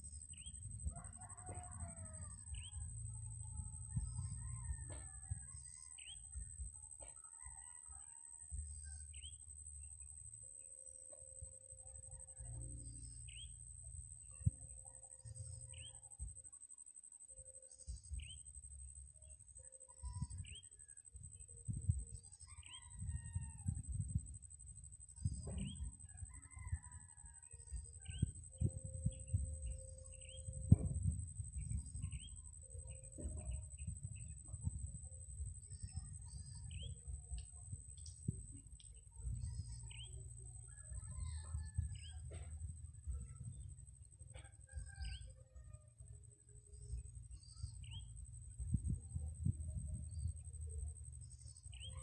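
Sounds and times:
insects droning: 0.0 - 52.0
low rumble: 2.3 - 6.8, 27.9 - 44.9, 45.9 - 52.0.

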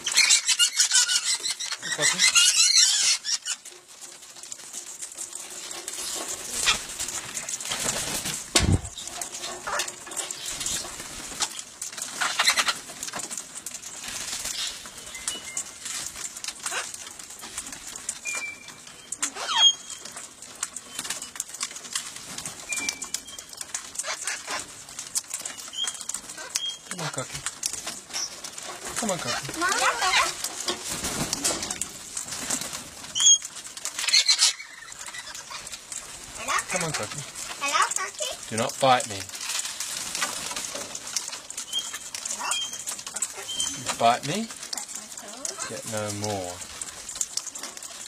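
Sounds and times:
parrots chirping: 0.0 - 3.8, 5.8 - 12.9, 16.6 - 17.0, 18.2 - 20.2, 22.7 - 24.8, 25.4 - 31.8, 33.0 - 39.2, 41.6 - 46.4
rustles and clicks of wings and feet: 0.0 - 48.0
wings flapping: 0.0 - 48.0.

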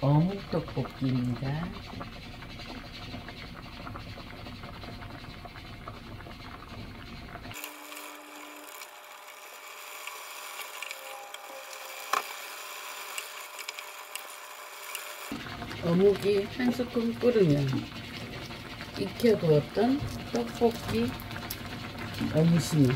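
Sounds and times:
sauce simmering in a pot: 0.0 - 22.9
wooden spatula stirring thick sauce: 0.2 - 7.2.

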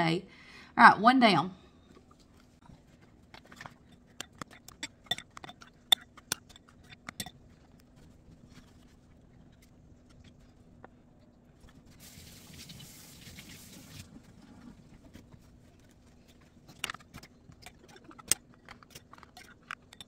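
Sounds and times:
faint steady hum: 0.0 - 20.0
utensils and containers clicking: 3.4 - 7.9, 16.7 - 20.0
soft hiss: 12.0 - 14.2.

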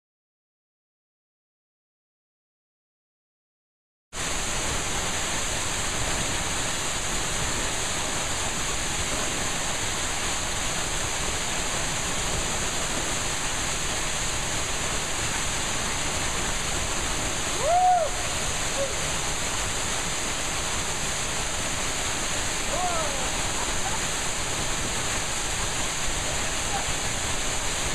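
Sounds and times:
waterfall pouring into a pool: 4.2 - 27.9
person shouting: 17.6 - 19.1, 22.7 - 23.4.

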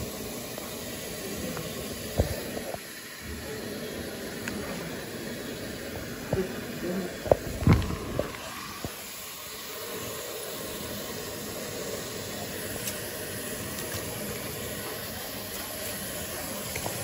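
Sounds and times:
faucet water running into tub: 0.0 - 17.0.

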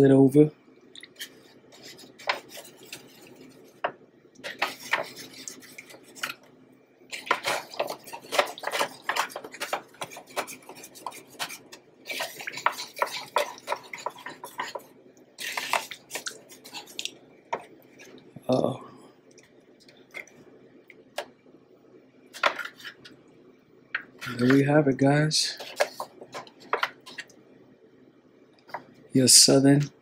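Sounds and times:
metal spoon scraping foil pan: 4.4 - 6.4, 7.1 - 14.8, 15.4 - 17.0, 25.5 - 27.3.

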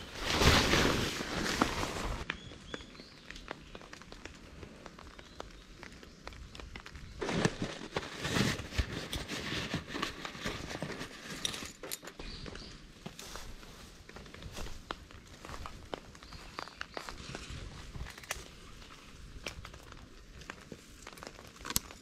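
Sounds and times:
fabric rustling and crinkling: 0.0 - 2.4, 6.6 - 11.8
rope clicks and scrapes: 0.1 - 2.3, 3.3 - 12.1, 15.9 - 22.0.

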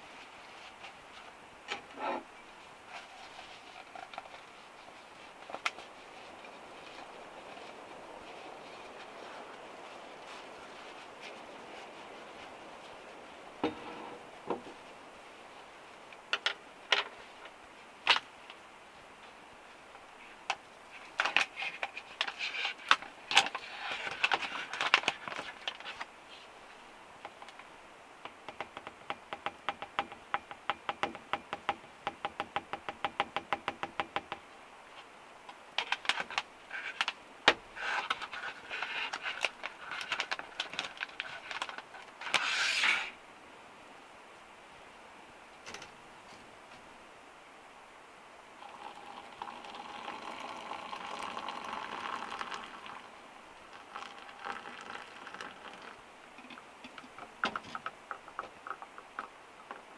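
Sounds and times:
rustle: 0.0 - 59.9
powder poured into ceramic mug: 48.6 - 53.0, 53.7 - 56.0.

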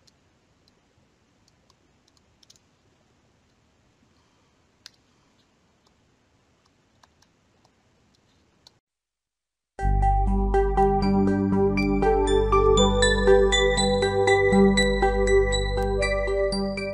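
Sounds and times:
low steady hiss: 0.0 - 16.9.

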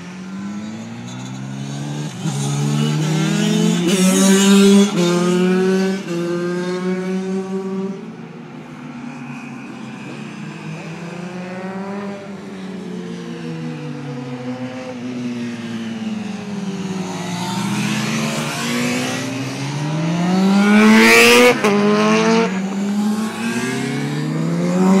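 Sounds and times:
racing motorcycles revving: 0.0 - 25.0.

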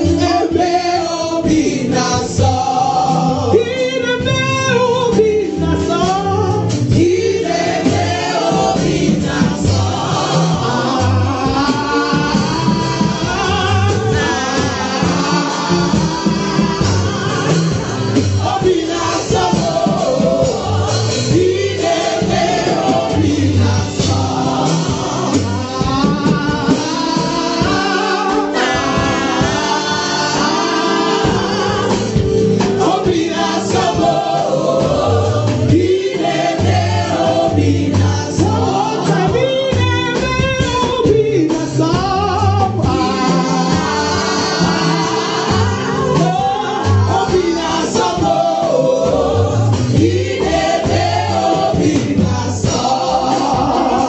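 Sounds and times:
backing voices singing: 0.0 - 54.0
instrumental bass line: 0.0 - 54.0
woman singing lead: 23.6 - 34.3.

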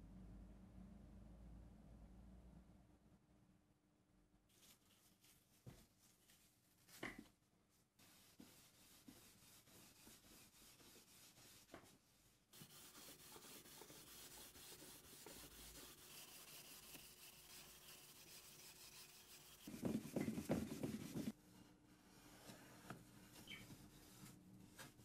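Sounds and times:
steel wool rubbing on wood: 8.0 - 21.4.

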